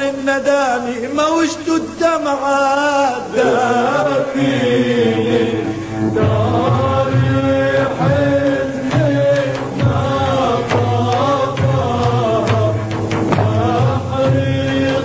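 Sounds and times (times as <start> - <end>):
voices singing wavering melody: 3.2 - 15.0.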